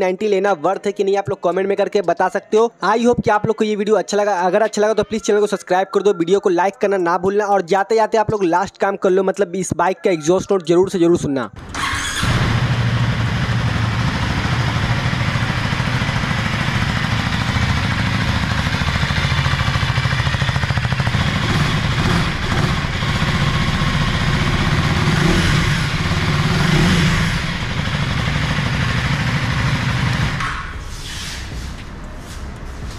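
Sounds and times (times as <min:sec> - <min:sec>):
motorcycle engine idling: 0:11.6 - 0:30.8
motorcycle engine revving: 0:11.6 - 0:30.8.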